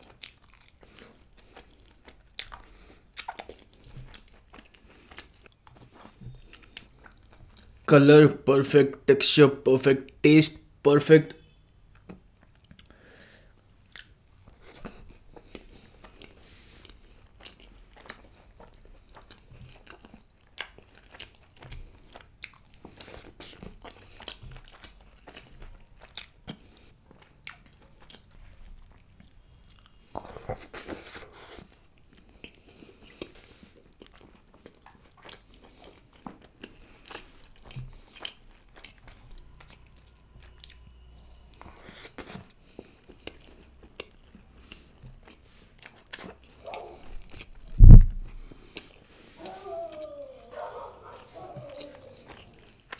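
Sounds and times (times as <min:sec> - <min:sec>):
person chewing: 0:00.0 - 0:07.9, 0:11.9 - 0:52.9
wet mouth clicks: 0:46.1 - 0:49.0.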